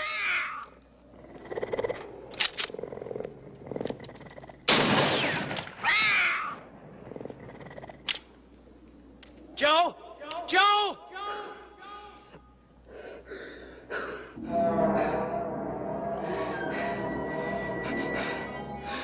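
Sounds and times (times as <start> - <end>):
big cat snarling and screeching: 0.0 - 4.7, 5.9 - 8.2
big cat growling: 1.0 - 4.7, 6.9 - 8.2.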